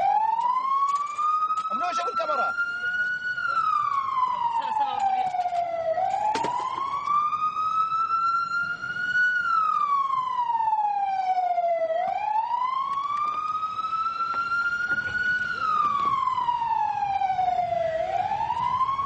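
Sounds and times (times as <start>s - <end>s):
ambulance siren wailing: 0.0s - 19.0s.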